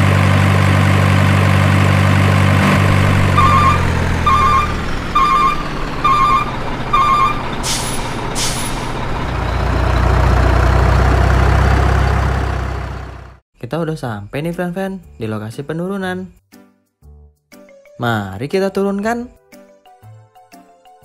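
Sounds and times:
truck engine running: 0:00.0 - 0:13.4
reversing beeps: 0:03.3 - 0:07.6
air brake hiss: 0:07.6 - 0:09.0.

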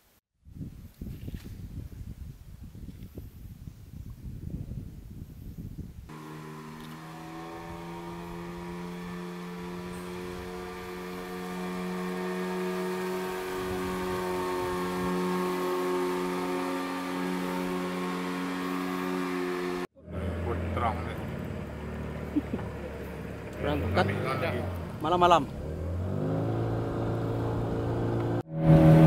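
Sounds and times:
outboard motor droning: 0:06.1 - 0:29.0.

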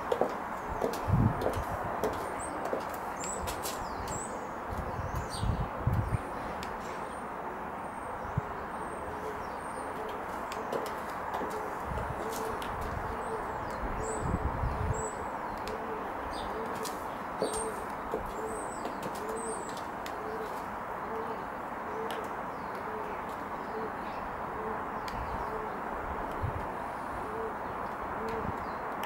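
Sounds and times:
small birds chirping: 0:00.0 - 0:07.3, 0:07.9 - 0:24.4
dove cooing: 0:08.4 - 0:14.2, 0:14.8 - 0:25.8, 0:27.2 - 0:28.6.

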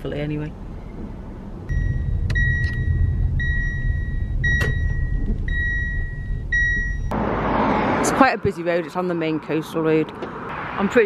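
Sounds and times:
road and tyre rumble: 0:00.0 - 0:11.0
in-car warning chime beeping: 0:01.7 - 0:07.2.

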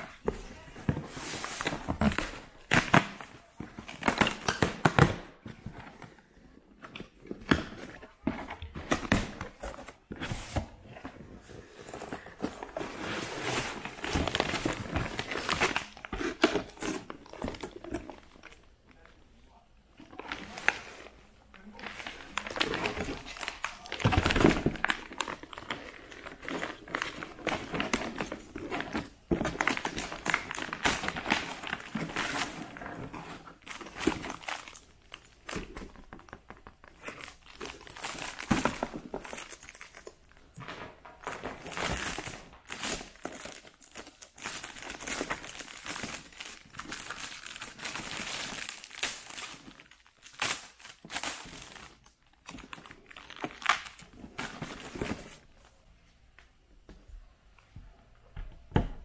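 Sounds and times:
plastic packaging crinkling: 0:20.0 - 0:55.5.

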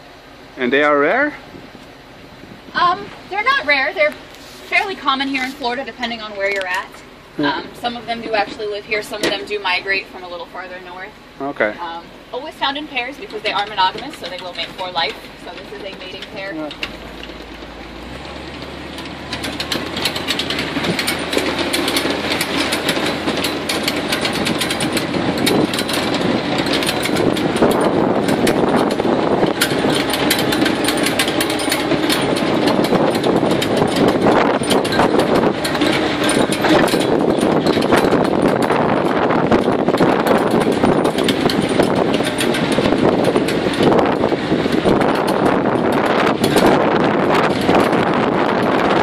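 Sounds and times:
swamp buggy engine running: 0:00.0 - 0:49.0
vehicle rattling and knocking: 0:00.0 - 0:49.0.

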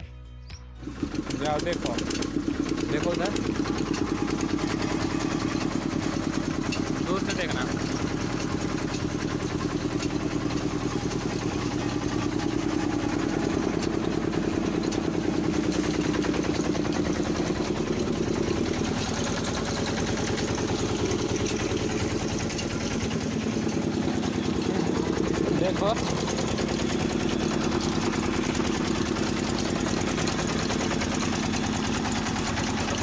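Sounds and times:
engine running with pulsing beat: 0:00.0 - 0:33.0.

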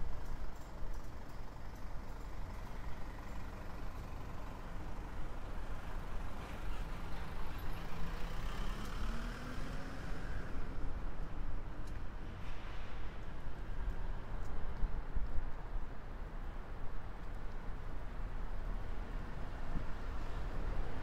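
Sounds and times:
road traffic noise: 0:00.0 - 0:21.0
vehicle engine accelerating: 0:08.0 - 0:10.4.

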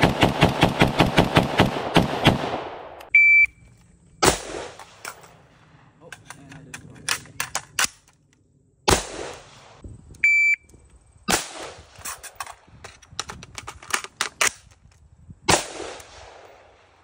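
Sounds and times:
rifle shots with echo: 0:00.0 - 0:03.1, 0:04.2 - 0:05.1, 0:08.9 - 0:09.8, 0:11.3 - 0:12.0, 0:15.5 - 0:17.0
short electronic beep: 0:03.2 - 0:03.6, 0:10.2 - 0:10.6.

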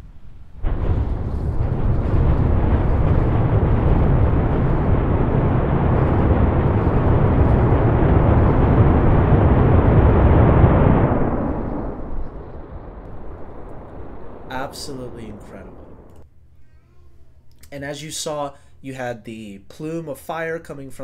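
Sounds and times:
rocket engines rumbling: 0:00.0 - 0:16.2.

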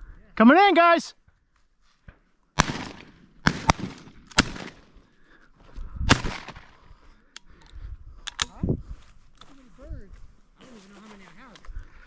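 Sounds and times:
shotgun shots: 0:02.6 - 0:05.0, 0:06.1 - 0:06.8.

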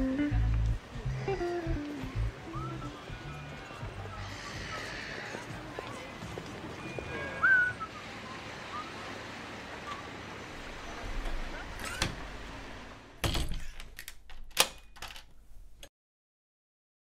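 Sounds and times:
outdoor background noise: 0:00.0 - 0:15.9.

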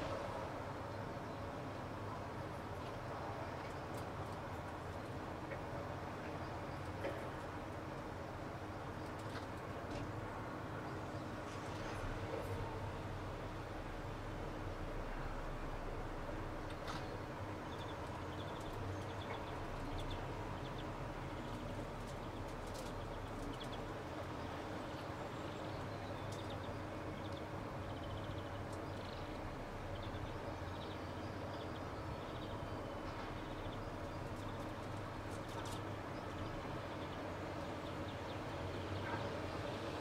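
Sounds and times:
small birds chirping: 0:16.8 - 0:39.9.

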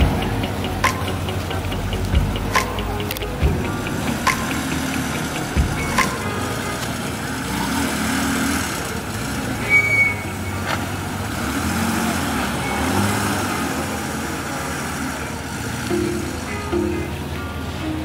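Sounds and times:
vehicle engine running: 0:00.0 - 0:18.0
brief high tone: 0:15.9 - 0:18.0.

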